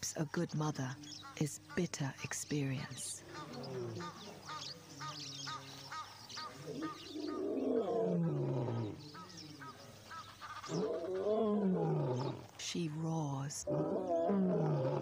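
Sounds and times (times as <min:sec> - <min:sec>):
lioness roaring: 0:06.7 - 0:09.0, 0:10.7 - 0:12.5, 0:13.7 - 0:15.0.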